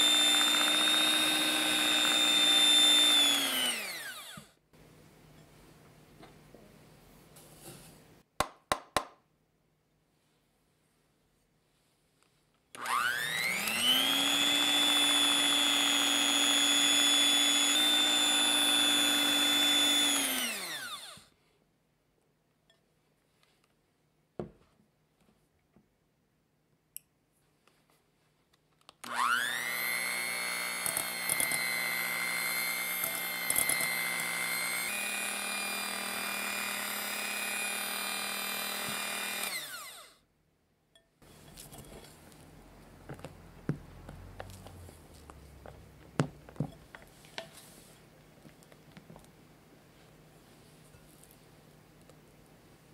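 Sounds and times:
electric hand mixer whining: 0.0 - 4.5, 12.8 - 21.3, 29.0 - 40.2.

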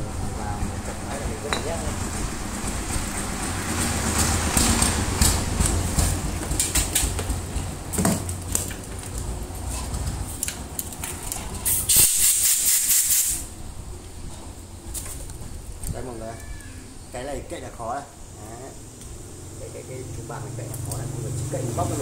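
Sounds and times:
hiss: 11.6 - 13.5.

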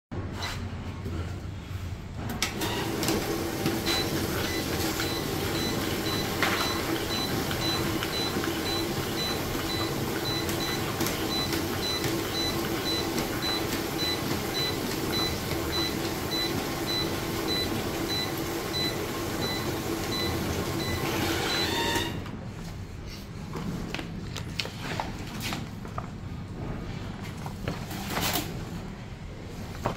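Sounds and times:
conveyor mechanical hum: 0.2 - 29.9.

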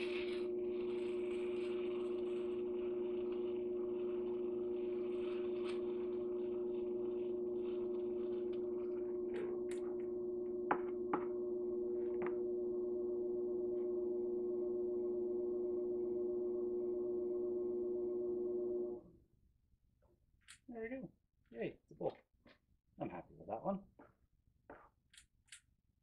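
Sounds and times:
pottery wheel humming: 0.0 - 19.2.

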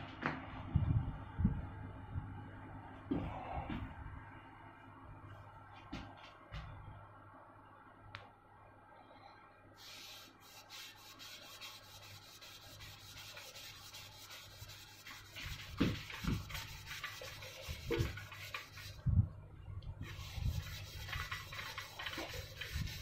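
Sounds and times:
pad scrubbing metal tubes: 9.8 - 19.0, 20.0 - 23.0.

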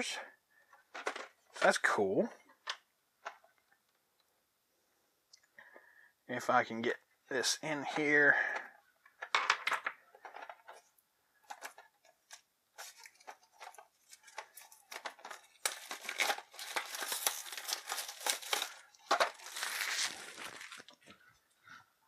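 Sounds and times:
plastic shrink-wrap crinkling: 12.8 - 21.1.

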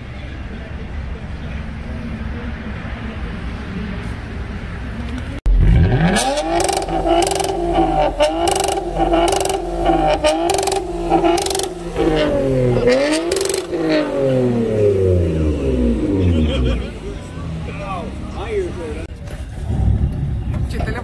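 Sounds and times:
sharp exhaust cracks: 5.5 - 16.1
car engine revving hard: 5.5 - 17.2.

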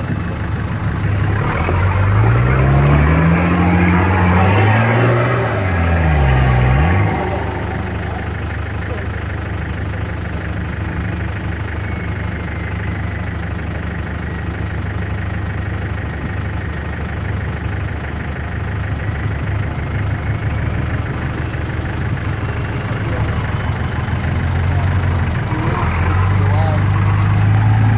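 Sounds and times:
engine idling inside cab: 0.0 - 1.8, 7.3 - 25.9.

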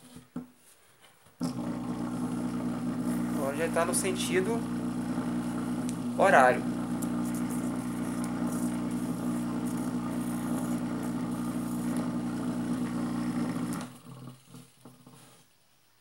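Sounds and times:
electric motor humming: 1.4 - 15.4.

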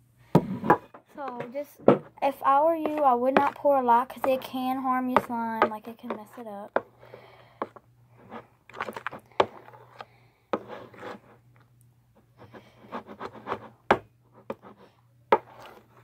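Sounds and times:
utensil scraping plastic bowl: 2.8 - 7.0, 7.7 - 11.4, 15.4 - 16.0.

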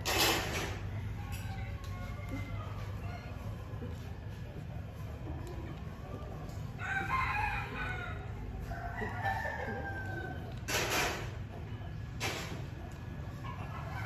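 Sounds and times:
rooster crowing: 6.8 - 10.6.

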